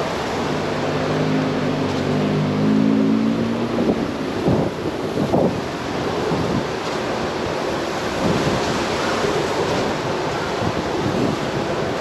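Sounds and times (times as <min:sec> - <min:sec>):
wind buffeting microphone: 0:03.2 - 0:12.0.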